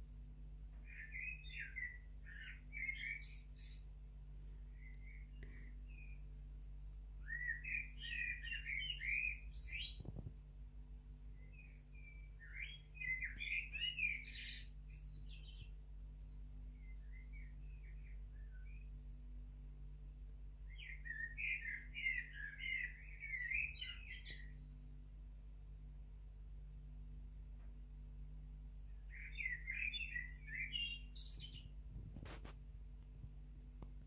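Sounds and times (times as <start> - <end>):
blackbird singing: 0.8 - 3.9, 4.7 - 10.2, 11.3 - 19.0, 20.6 - 25.0, 28.9 - 34.0.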